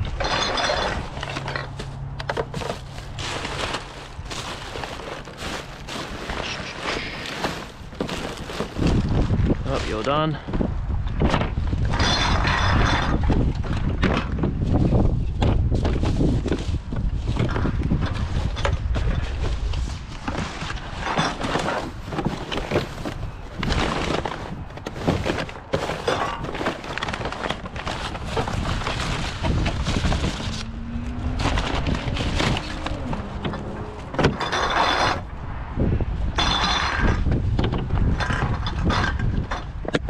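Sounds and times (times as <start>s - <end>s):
plastic and packaging crinkling: 0.0s - 10.4s, 18.2s - 35.3s
rubbish rummaged in plastic bin: 0.0s - 35.3s.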